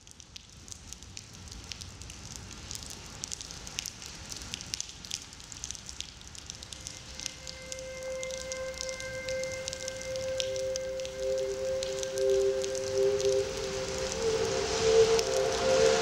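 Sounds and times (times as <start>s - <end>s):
rain falling: 0.0s - 16.0s.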